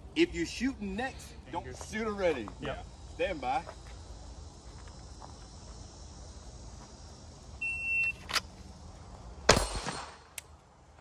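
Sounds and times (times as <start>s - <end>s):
handgun shots: 9.5s - 10.4s.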